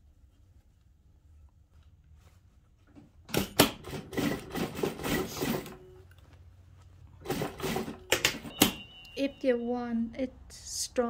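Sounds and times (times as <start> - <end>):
sewing machine clattering: 7.2 - 8.8.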